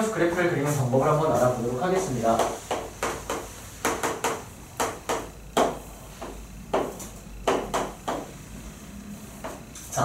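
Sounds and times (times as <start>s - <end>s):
chalk tapping and scratching: 1.4s - 8.3s.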